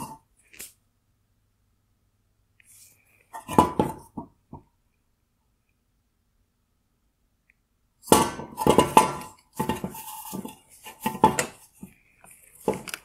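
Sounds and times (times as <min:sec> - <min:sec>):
plastic and metal parts clinking: 0:12.2 - 0:13.0.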